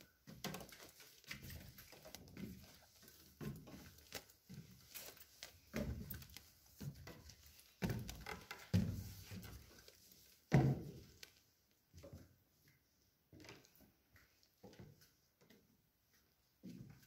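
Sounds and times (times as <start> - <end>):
footsteps on wooden stairs: 0.2 - 11.2.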